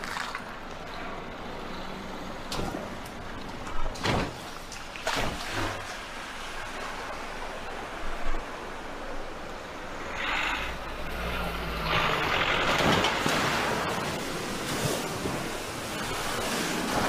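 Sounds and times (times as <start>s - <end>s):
floodwater rushing: 2.1s - 17.0s
tyres splashing through water: 2.5s - 7.5s, 10.0s - 17.0s.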